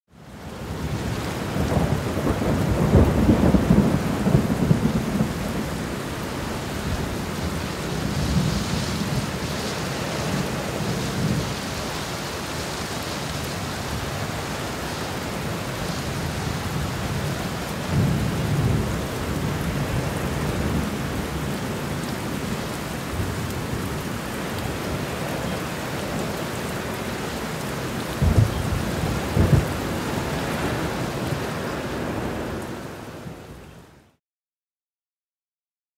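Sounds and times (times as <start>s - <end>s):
steady rain: 0.1s - 34.2s
thunder rolling: 1.5s - 5.9s, 28.2s - 31.0s.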